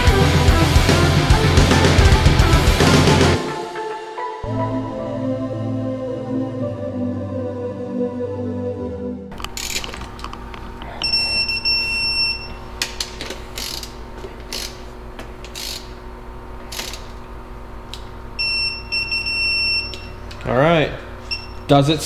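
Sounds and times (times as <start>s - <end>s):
long electronic beeps: 11.0s - 12.6s, 18.4s - 20.2s
torque wrench ratchet clicks: 13.6s - 14.8s, 15.4s - 16.0s.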